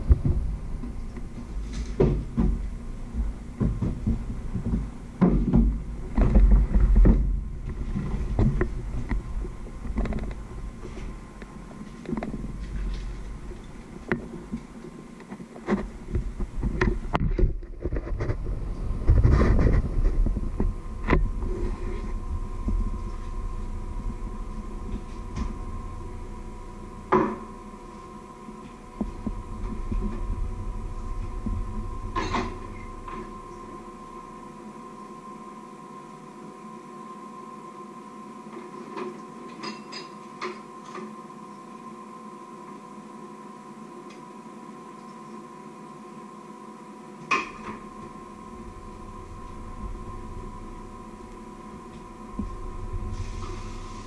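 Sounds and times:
low rumble: 0.0s - 14.8s, 15.9s - 34.4s, 47.8s - 54.0s
high electrical hum: 0.0s - 54.0s.

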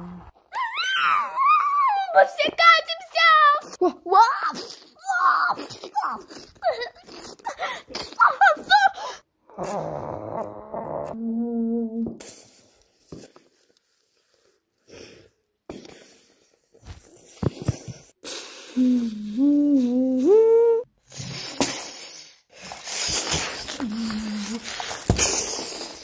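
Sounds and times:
person humming: 9.6s - 12.2s, 18.7s - 20.9s, 23.7s - 24.8s.

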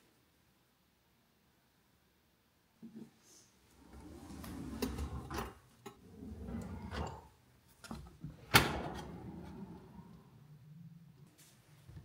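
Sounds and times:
drawers sliding open and shut: 3.8s - 11.2s.

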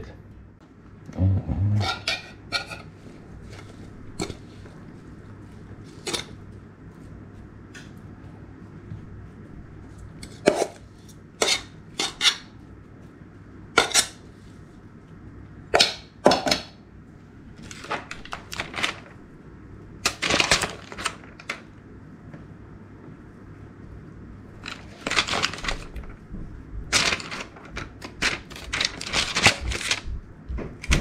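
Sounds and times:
faint steady hum: 0.0s - 31.0s
dishes and utensils clattering: 1.8s - 2.9s.

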